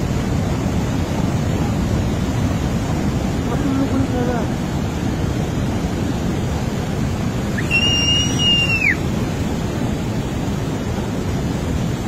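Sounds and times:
floodwater rushing: 0:00.0 - 0:12.0
high whistle: 0:07.6 - 0:09.0.

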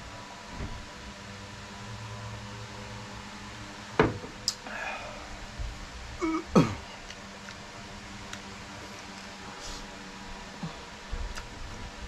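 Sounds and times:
faint hums: 0:01.7 - 0:12.0
man clearing his throat: 0:06.2 - 0:07.0.

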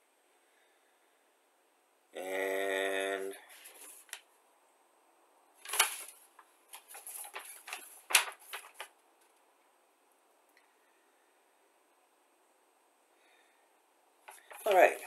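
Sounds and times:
paper leaflet rustling and crackling: 0:03.5 - 0:04.3, 0:05.6 - 0:09.4, 0:14.2 - 0:15.0.

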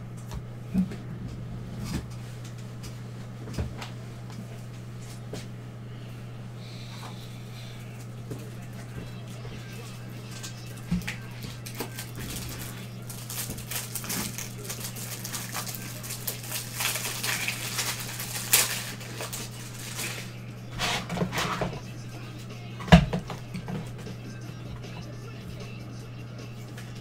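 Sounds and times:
low electrical hum: 0:00.0 - 0:27.0
cards rustling and crinkling: 0:07.6 - 0:21.6.

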